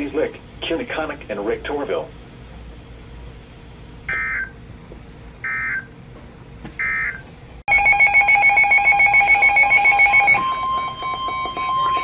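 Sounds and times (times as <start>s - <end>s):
rapidly pulsing electronic beep: 4.1s - 4.6s, 6.8s - 12.0s.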